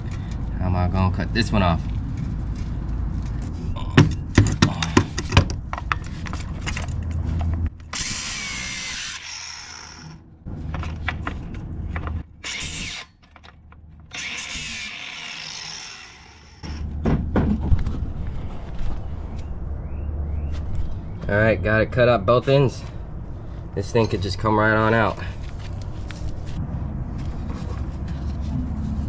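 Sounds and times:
power tool cutting metal: 7.9s - 10.2s, 14.1s - 16.8s.

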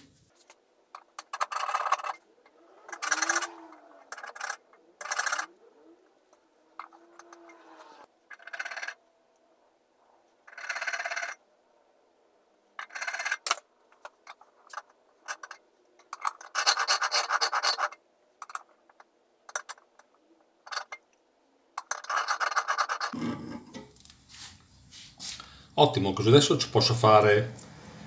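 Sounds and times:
steel point scratching metal: 1.0s - 5.6s, 6.7s - 9.0s, 14.3s - 18.6s, 21.8s - 23.8s.

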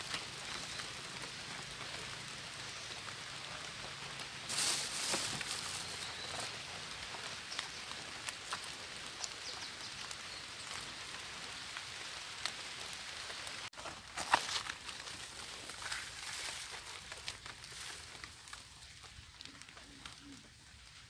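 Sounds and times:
rain pattering on leaves: 0.0s - 21.0s
rustling: 4.5s - 6.6s, 13.8s - 20.5s.

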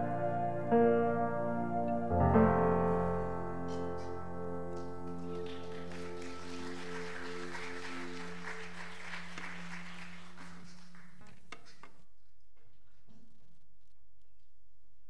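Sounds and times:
held keyboard chord: 0.0s - 10.0s
congregation applauding: 3.7s - 11.8s.

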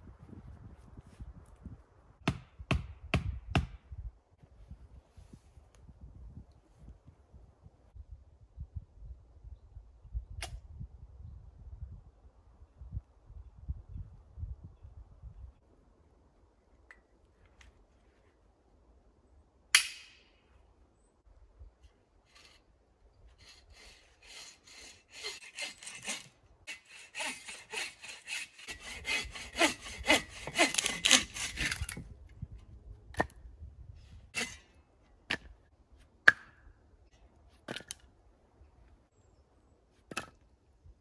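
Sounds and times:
hand saw rasping through branch: 23.4s - 32.0s, 34.4s - 34.7s.

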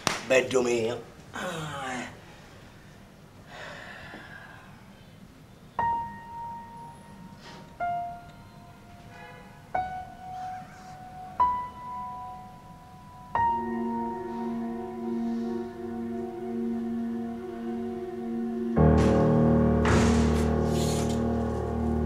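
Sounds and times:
slow piano notes: 5.7s - 22.0s.

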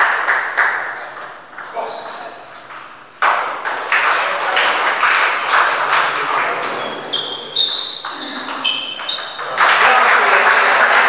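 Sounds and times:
spectators clapping: 0.0s - 1.9s, 3.1s - 11.0s
sports shoes squeaking: 0.9s - 3.2s, 6.6s - 9.6s.

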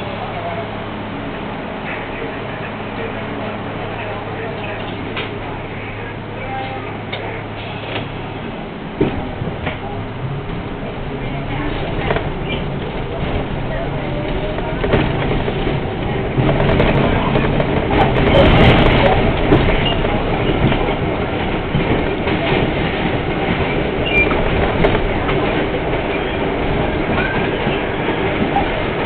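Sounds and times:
train wheels rushing on rails: 0.0s - 29.0s
high wheel squeaks: 12.4s - 13.0s, 19.7s - 20.7s, 23.6s - 24.6s.

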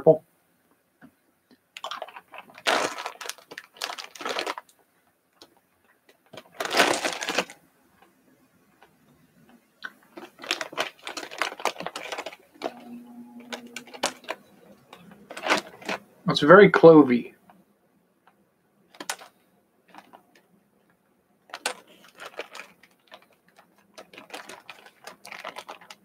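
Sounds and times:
closed-mouth hum: 12.5s - 17.6s.

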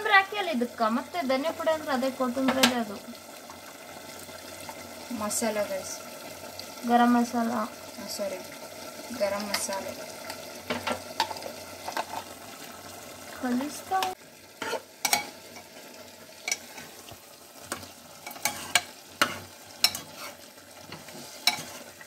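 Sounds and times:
chicken sizzling: 0.0s - 22.0s
spoon scraping a pan: 10.7s - 12.4s, 14.0s - 15.8s, 16.4s - 17.0s, 17.6s - 22.0s.

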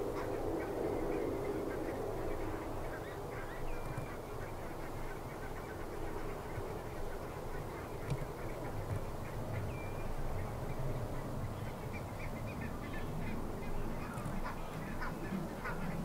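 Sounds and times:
geese calling: 11.6s - 16.0s.

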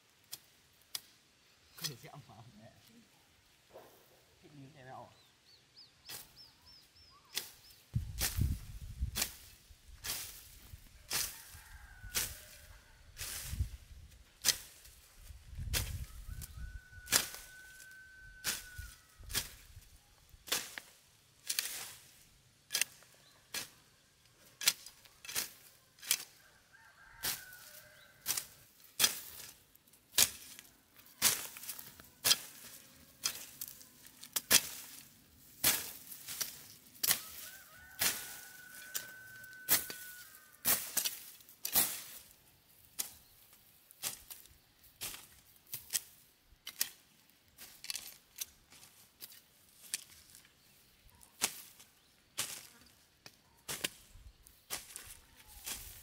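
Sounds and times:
machete slashing through weeds: 7.3s - 11.5s, 14.4s - 15.0s, 18.4s - 19.7s, 20.5s - 23.7s, 28.2s - 43.4s, 44.0s - 47.0s, 51.4s - 51.8s, 52.4s - 52.7s, 53.7s - 56.0s.

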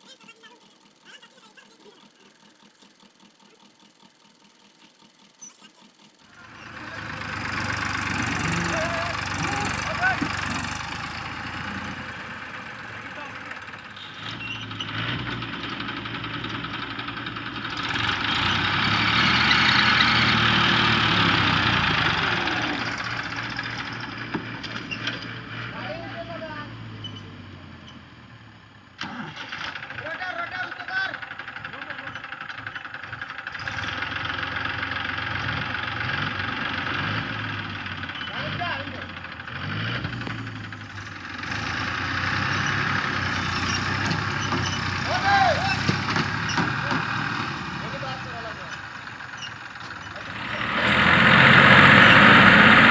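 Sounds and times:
tractor diesel engines under load: 0.0s - 52.9s.

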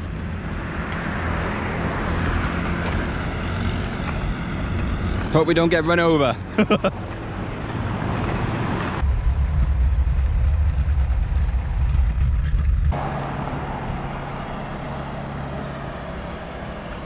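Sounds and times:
motor scooter engine: 0.0s - 9.2s
road noise: 0.0s - 17.0s
wind rumble on microphone: 7.8s - 14.2s.

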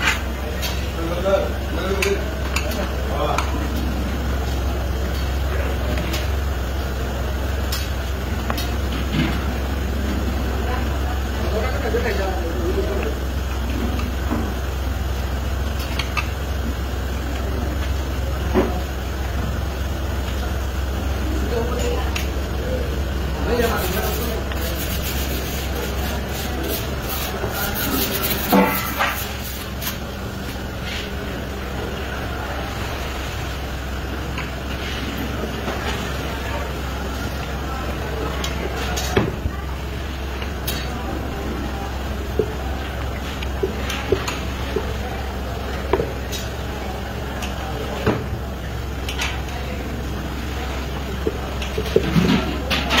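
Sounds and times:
low background hum: 0.0s - 53.0s
dough rubbed in flour: 23.3s - 30.1s.

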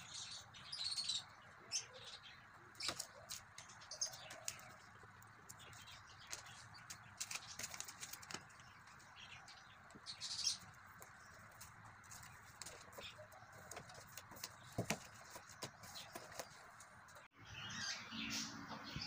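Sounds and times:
wrapping paper rustling and crinkling: 7.1s - 8.6s.

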